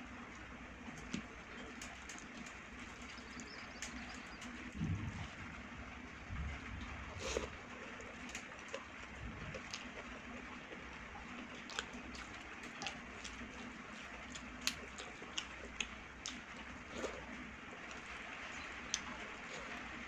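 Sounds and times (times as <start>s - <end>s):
wet mouth clicks while chewing: 11.4s - 17.3s.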